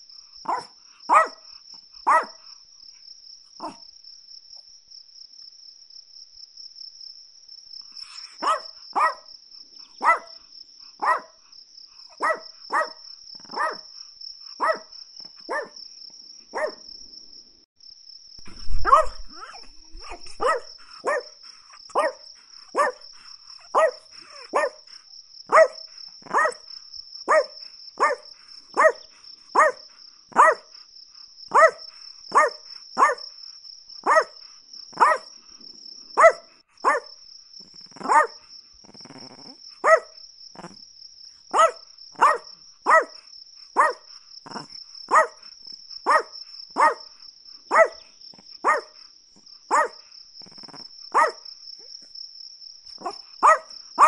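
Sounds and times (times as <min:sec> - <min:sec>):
small dog barking sharply: 0:00.5 - 0:01.4, 0:02.1 - 0:02.4, 0:03.6 - 0:03.8, 0:08.4 - 0:09.3, 0:10.0 - 0:10.4, 0:11.0 - 0:11.4, 0:12.2 - 0:13.9, 0:14.6 - 0:14.9, 0:15.5 - 0:15.8, 0:16.6 - 0:16.8, 0:18.5 - 0:21.3, 0:21.9 - 0:22.2, 0:22.8 - 0:23.0, 0:23.7 - 0:24.8, 0:25.5 - 0:26.6, 0:27.3 - 0:28.2, 0:28.8 - 0:29.0, 0:29.6 - 0:30.7, 0:31.5 - 0:33.2, 0:34.1 - 0:34.4, 0:35.0 - 0:35.3, 0:36.2 - 0:37.1, 0:38.0 - 0:38.4, 0:39.8 - 0:40.1, 0:41.5 - 0:43.2, 0:43.8 - 0:45.4, 0:46.1 - 0:47.1, 0:47.7 - 0:48.0, 0:48.6 - 0:48.9, 0:49.7 - 0:50.0, 0:51.2 - 0:51.4, 0:53.0 - 0:54.0
loud low thump: 0:18.4 - 0:20.5.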